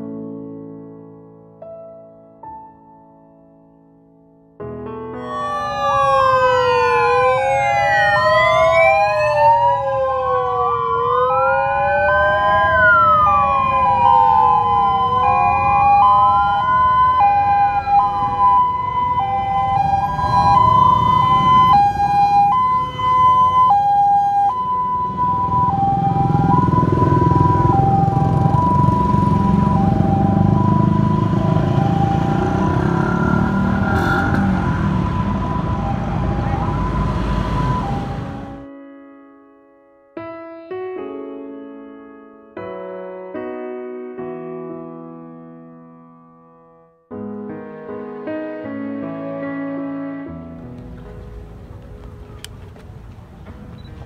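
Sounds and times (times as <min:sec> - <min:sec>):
two-tone siren: 0:05.2 - 0:38.7
wailing sirens: 0:05.2 - 0:38.7
vehicle engines and tyres: 0:05.3 - 0:38.6, 0:50.4 - 0:54.0.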